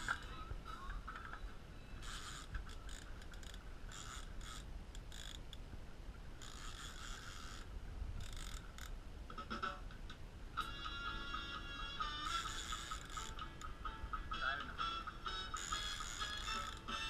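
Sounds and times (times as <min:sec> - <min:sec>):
steady low rumble: 0:00.0 - 0:06.4, 0:07.6 - 0:12.3
fishing reel spurts: 0:02.0 - 0:05.5, 0:06.4 - 0:08.9, 0:12.1 - 0:13.7, 0:15.4 - 0:17.0.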